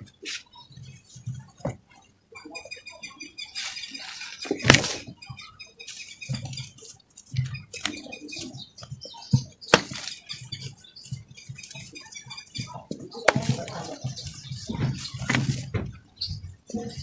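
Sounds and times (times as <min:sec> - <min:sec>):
hands crumbling dry dirt: 0:09.7 - 0:10.5.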